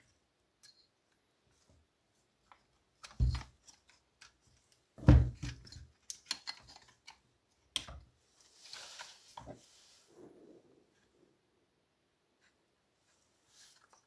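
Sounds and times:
plastic parts clicking and knocking: 2.4s - 8.1s.

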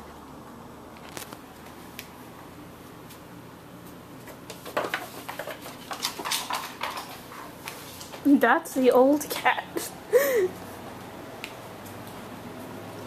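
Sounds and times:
cats scrambling on hardwood floor: 4.2s - 8.2s.

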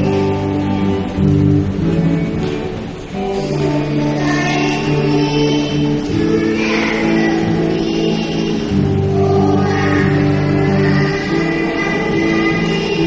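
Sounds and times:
music: 0.0s - 13.0s
several voices singing: 3.3s - 13.0s.

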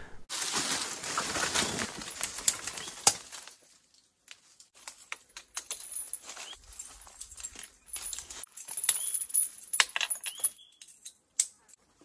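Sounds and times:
rustling and handling: 0.3s - 12.0s.

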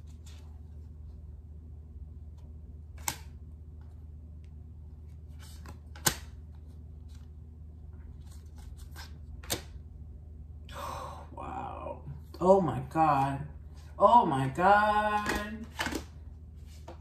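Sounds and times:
low hum: 0.0s - 17.0s
cards snapping: 2.9s - 3.4s, 5.4s - 6.5s, 8.2s - 9.8s, 15.1s - 16.1s
cards rustling: 5.1s - 7.4s, 8.0s - 9.8s, 14.6s - 17.0s.

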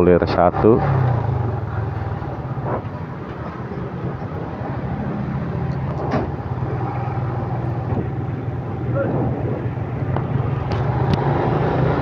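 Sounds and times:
motorcycle engine running: 0.2s - 4.6s.

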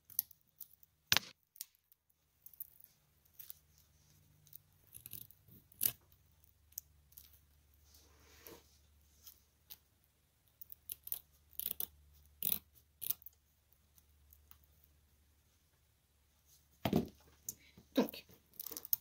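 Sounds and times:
scissors snipping velcro tape: 10.7s - 13.3s.

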